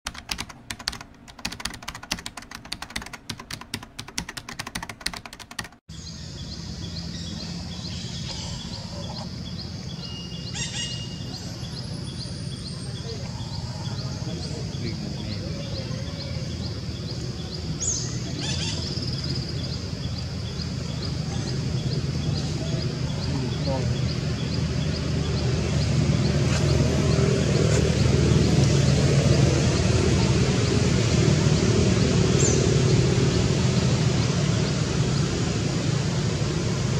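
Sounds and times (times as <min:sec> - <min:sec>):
keyboard typing clicks: 0:00.1 - 0:05.8
low motor hum: 0:11.2 - 0:36.9.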